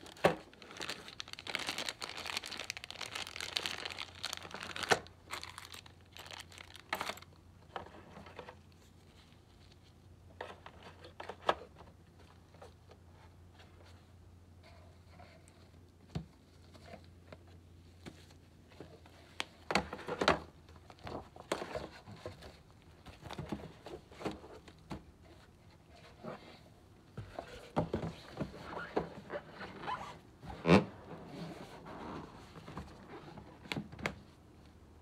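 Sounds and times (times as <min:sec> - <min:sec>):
plastic wrap crinkling: 0:00.0 - 0:07.4.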